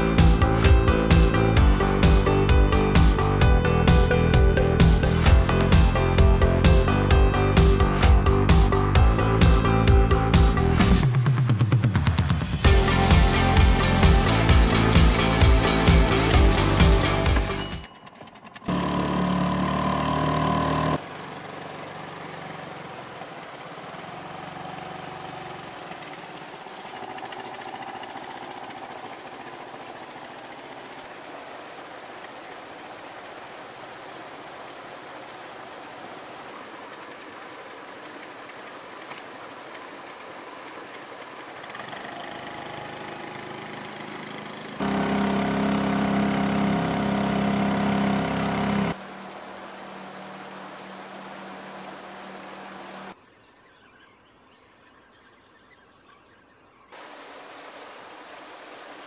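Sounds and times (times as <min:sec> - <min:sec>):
outboard motor running: 0:00.0 - 0:32.5, 0:38.4 - 0:53.2.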